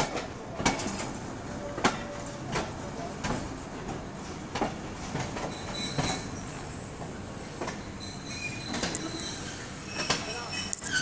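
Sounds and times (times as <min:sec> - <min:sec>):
train wheels squealing: 0:05.4 - 0:11.0.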